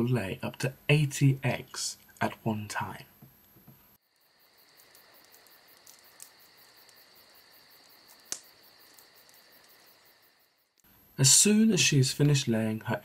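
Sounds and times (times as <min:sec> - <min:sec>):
insect chirring: 0:04.0 - 0:10.9
sharp click: 0:08.3 - 0:08.5.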